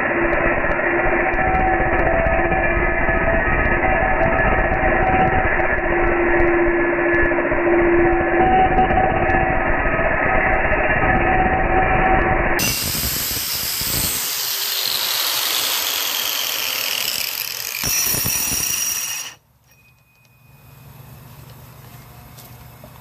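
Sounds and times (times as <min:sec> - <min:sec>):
angle grinder grinding stone: 0:12.6 - 0:19.4.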